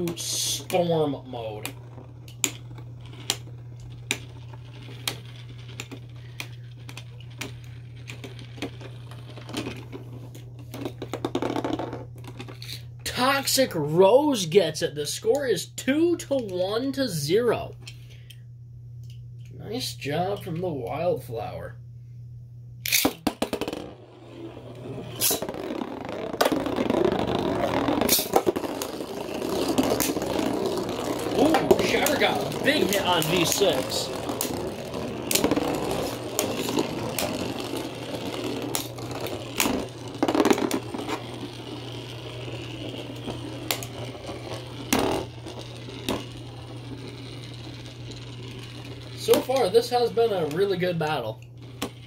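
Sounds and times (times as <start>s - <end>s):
low steady hum: 0.0s - 52.0s
spinning tops clacking together: 22.9s - 50.6s
string launchers ripping zips: 24.2s - 40.1s.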